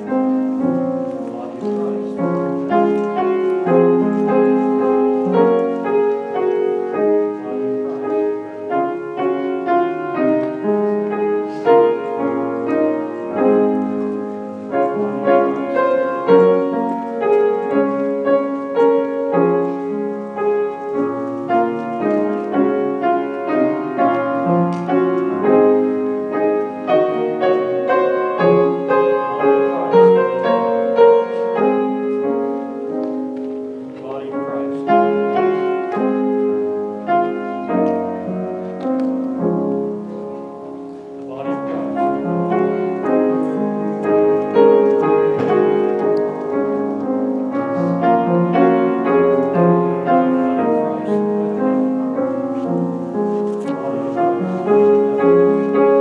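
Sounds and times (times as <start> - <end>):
piano music: 0.0 - 56.0.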